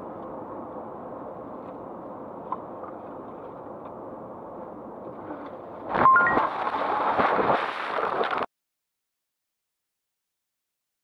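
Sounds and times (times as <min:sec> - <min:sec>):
car cabin road and wind noise: 0:00.0 - 0:08.5.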